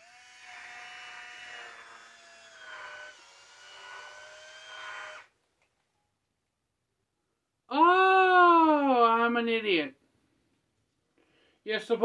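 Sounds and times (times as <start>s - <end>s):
electric wine opener motor whining: 0.0s - 5.3s.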